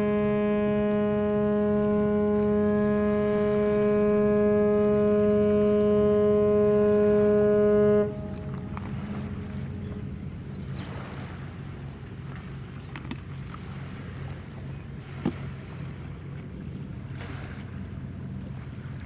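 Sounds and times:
ship's whistle blast: 0.0s - 11.6s
low hum: 0.0s - 19.0s.

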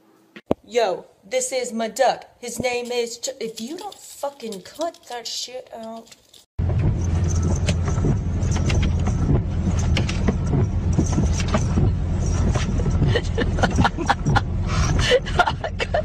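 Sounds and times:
car engine and road rumble: 6.6s - 16.0s.

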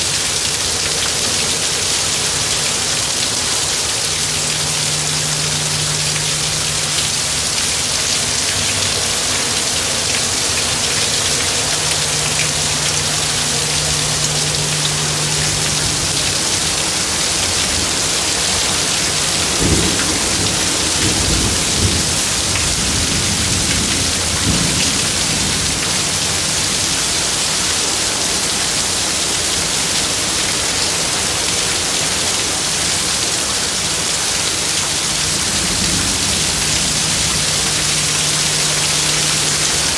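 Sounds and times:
heavy rain pouring: 0.0s - 39.9s
thunder rumbling: 2.4s - 27.6s, 34.8s - 39.9s.

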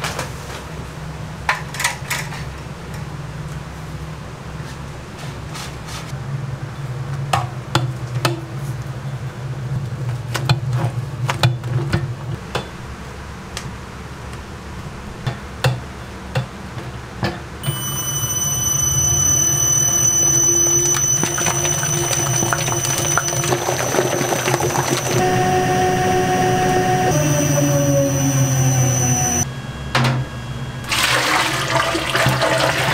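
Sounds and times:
high whine: 17.6s - 31.5s
mixer motor hum: 17.6s - 32.9s.

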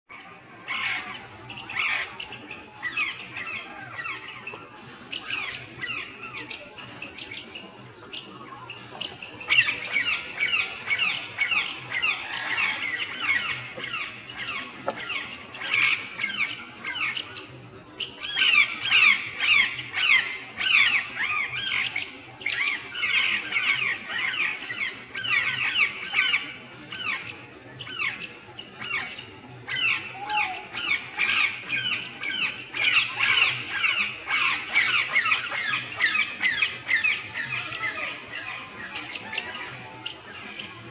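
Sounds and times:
parakeets squawking: 8.7s - 17.2s, 29.7s - 40.2s.

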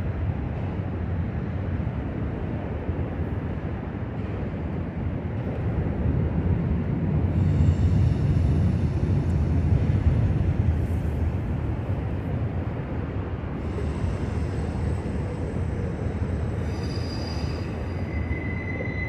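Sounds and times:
distant train wheels rumbling: 0.0s - 19.0s
faint high squeal: 13.6s - 19.0s.

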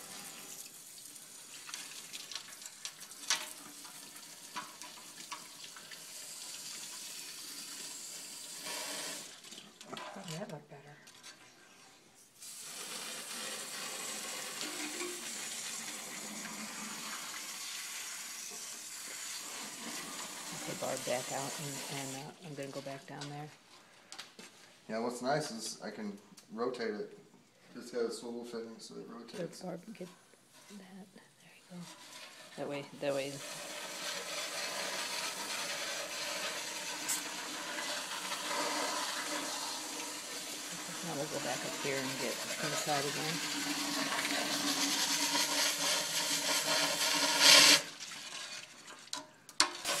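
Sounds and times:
water spray hissing: 0.0s - 9.5s, 12.4s - 22.8s, 32.2s - 48.0s.

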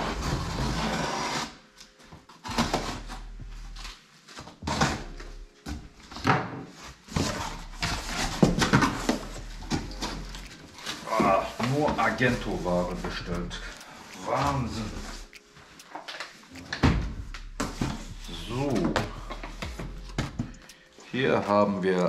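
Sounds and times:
cardboard rustling and scraping: 0.0s - 15.2s.

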